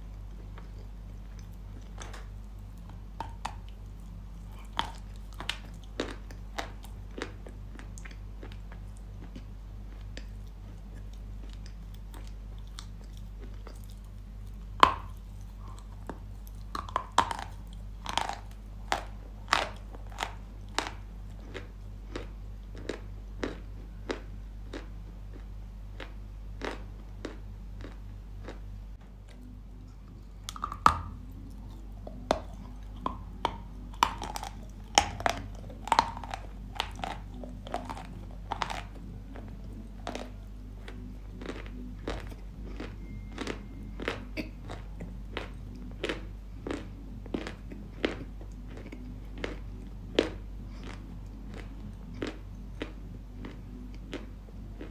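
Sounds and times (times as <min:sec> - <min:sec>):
chalk being chewed: 0:00.1 - 0:28.6, 0:29.3 - 0:54.9.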